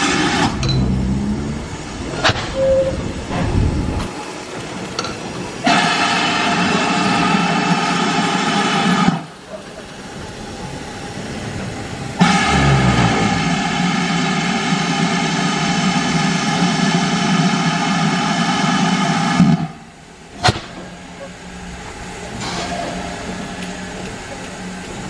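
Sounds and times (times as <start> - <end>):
locomotive engine drone: 0.0 - 7.3, 8.7 - 25.0
low thud: 12.2 - 13.9.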